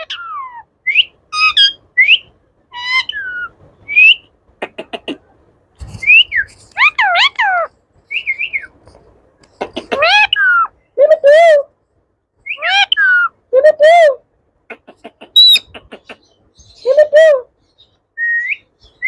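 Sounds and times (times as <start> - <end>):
parakeet whistled calls: 0.0 - 4.3.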